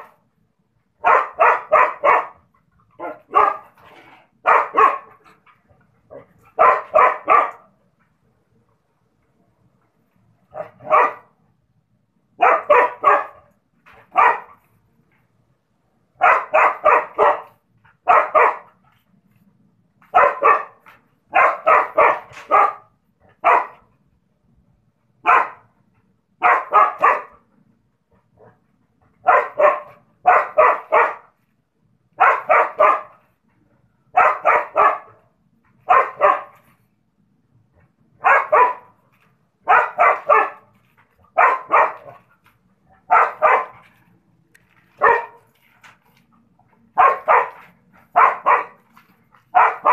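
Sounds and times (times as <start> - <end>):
dog barking: 1.0 - 3.8, 4.4 - 5.4, 6.1 - 7.8, 10.5 - 11.4, 12.4 - 14.6, 16.2 - 18.8, 20.0 - 23.9, 25.2 - 25.7, 26.4 - 27.4, 29.2 - 31.4, 32.2 - 33.3, 34.1 - 35.2, 35.8 - 36.6, 38.2 - 39.0, 39.6 - 40.7, 41.3 - 42.2, 43.0 - 43.9, 45.0 - 45.5, 47.0 - 48.8, 49.5 - 49.9.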